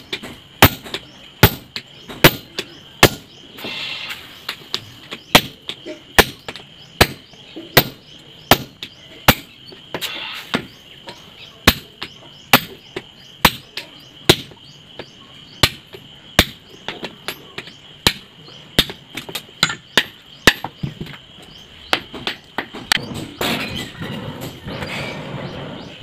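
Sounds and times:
hammer striking hot steel on anvil: 0:00.6 - 0:03.3.

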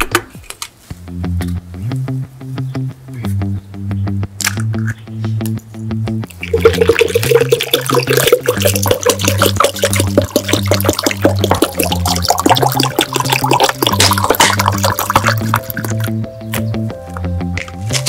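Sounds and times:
background music: 0:00.4 - 0:18.0
liquid glugging from bottle: 0:06.3 - 0:16.1.

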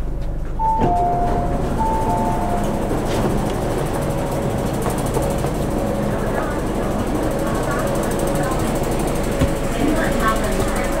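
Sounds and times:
train low hum: 0:00.0 - 0:11.0
two-tone electronic chime: 0:00.6 - 0:02.7.

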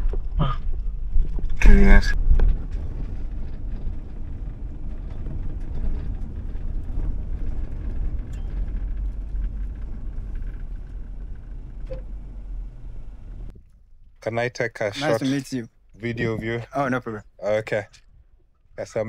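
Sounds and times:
car engine and tyres rumbling: 0:00.0 - 0:13.7.

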